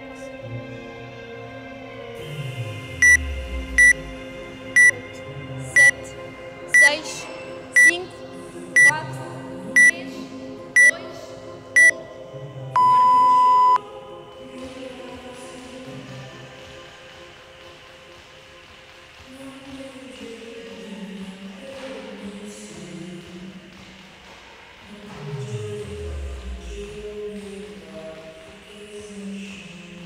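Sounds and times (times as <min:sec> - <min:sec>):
background music: 0:00.0 - 0:30.0
long lower beep: 0:03.0 - 0:03.2, 0:03.8 - 0:04.0, 0:04.8 - 0:05.0, 0:05.8 - 0:06.0, 0:11.8 - 0:12.0, 0:12.8 - 0:13.8
short high beeps: 0:04.8 - 0:05.0, 0:05.8 - 0:06.0, 0:12.8 - 0:13.8.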